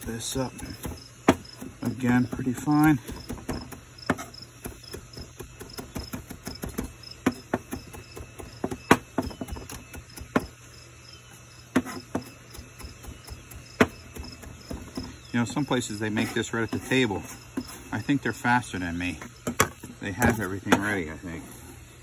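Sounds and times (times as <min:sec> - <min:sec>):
knife chopping on plastic board: 0:00.6 - 0:10.6, 0:11.7 - 0:15.2.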